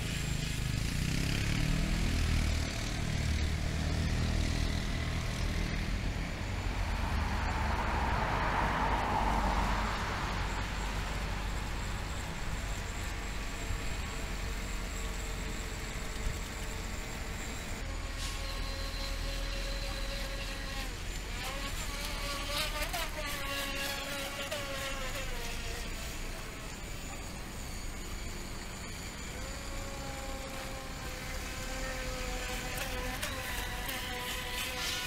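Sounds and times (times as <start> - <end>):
model boat motors buzzing: 0.0 - 8.3, 9.2 - 35.0.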